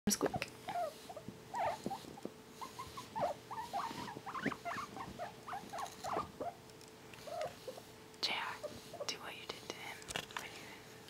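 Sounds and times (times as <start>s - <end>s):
guinea pig squeaking: 0.1s - 6.6s, 7.2s - 7.8s.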